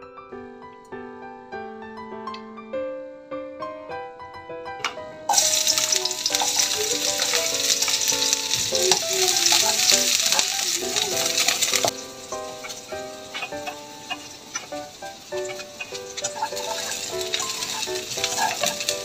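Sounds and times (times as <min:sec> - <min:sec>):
onions sizzling in hot oil: 0:05.3 - 0:19.0.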